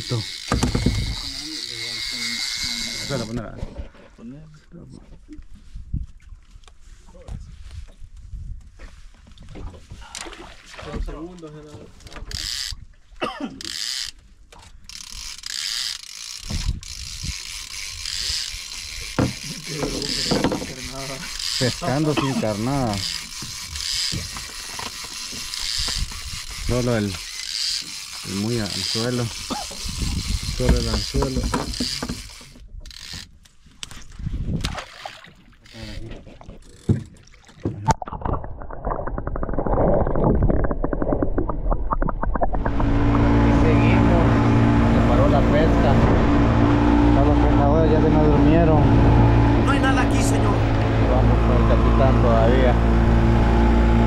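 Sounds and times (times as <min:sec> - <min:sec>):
fishing reel ratcheting: 0:00.0 - 0:03.4, 0:12.0 - 0:12.8, 0:13.6 - 0:14.2, 0:14.8 - 0:33.5, 0:35.6 - 0:36.9
outboard motor muffled underwater: 0:00.0 - 0:03.9, 0:13.5 - 0:33.3, 0:35.3 - 0:54.0
sharp knocks: 0:19.2 - 0:20.7.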